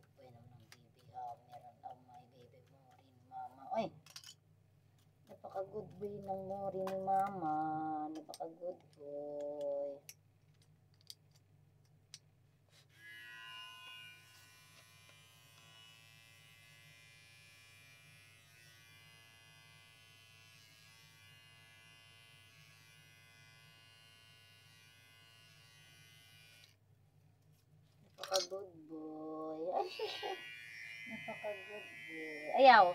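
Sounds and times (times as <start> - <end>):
electric hair clippers buzzing: 12.9 - 26.8, 29.7 - 32.9.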